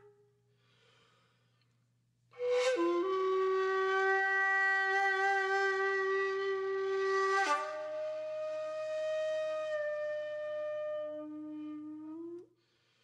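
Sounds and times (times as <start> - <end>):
woodwind instrument long notes: 2.4 - 12.5.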